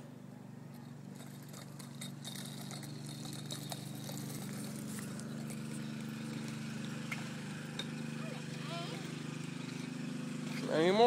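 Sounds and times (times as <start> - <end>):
bike wheels rumbling on concrete: 0.0 - 11.0.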